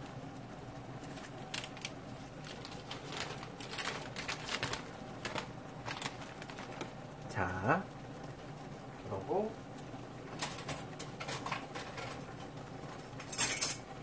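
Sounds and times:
water boiling with bubbling pops: 0.0s - 14.0s.

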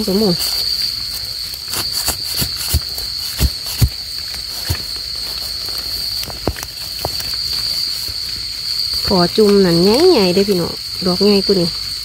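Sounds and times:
high insect chorus: 0.0s - 12.0s
digging blade thudding into earth: 1.7s - 5.0s.

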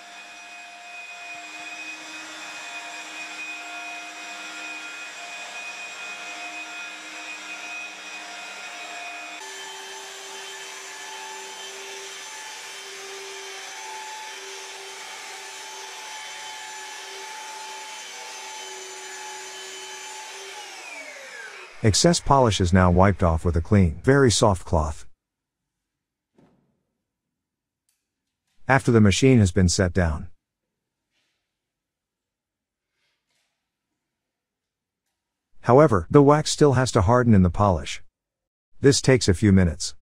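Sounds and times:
polishing machine motor whine: 0.0s - 21.8s.

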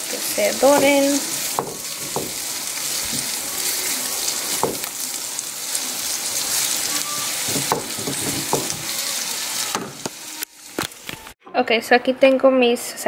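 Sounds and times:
vegetables sizzling in skillet: 0.0s - 11.4s
spatula knocking on pan: 0.6s - 2.5s, 4.6s - 4.9s, 7.4s - 8.9s
spatula stirring: 6.2s - 9.0s.

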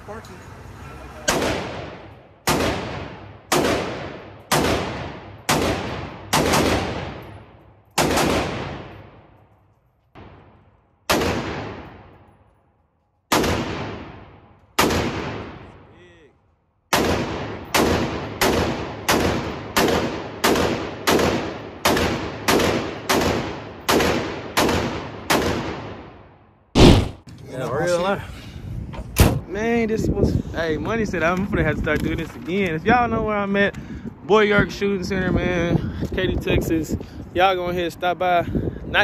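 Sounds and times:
echoing gunshots: 1.3s - 9.5s, 10.2s - 12.5s, 13.3s - 15.9s, 16.9s - 27.2s.

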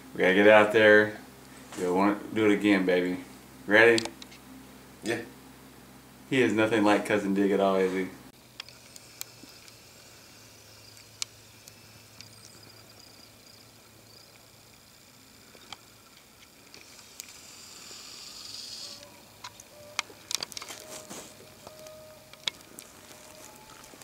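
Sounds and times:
rustling of dry grass: 18.6s - 24.0s.

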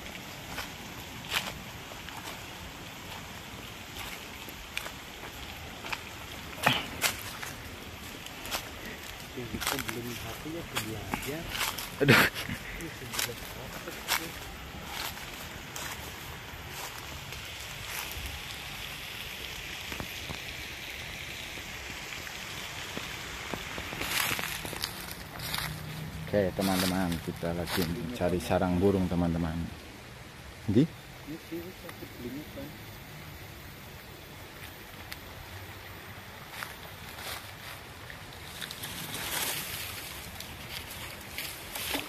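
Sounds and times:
twigs and leaves snapping underfoot: 0.0s - 18.7s, 22.9s - 28.2s, 34.5s - 42.0s
river flowing: 0.0s - 42.0s.

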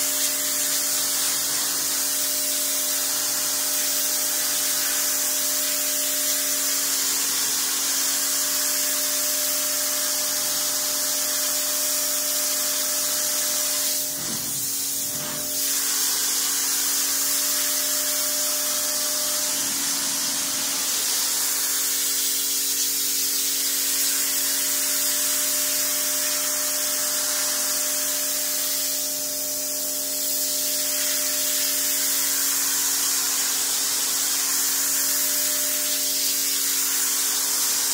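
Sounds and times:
pressure washer hum: 0.0s - 37.9s
pressure washer jet hissing: 0.0s - 37.9s.

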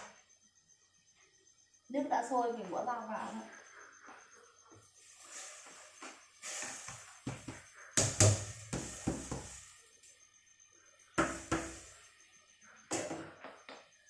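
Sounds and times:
plastic colander knocking on pot: 7.3s - 9.6s, 11.2s - 11.8s.

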